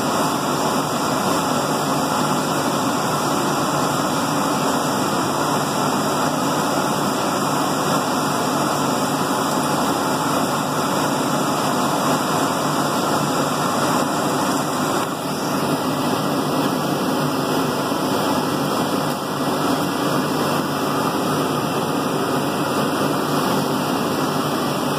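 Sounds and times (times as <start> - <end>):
exhaust fans rushing: 0.0 - 24.9.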